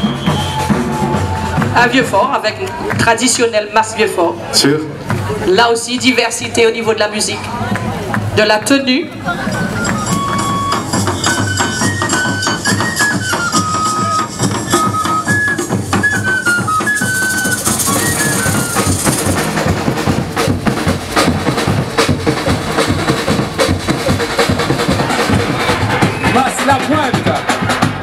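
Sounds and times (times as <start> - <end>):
drums and percussion: 0.0 - 28.0
high melody line: 9.2 - 20.8.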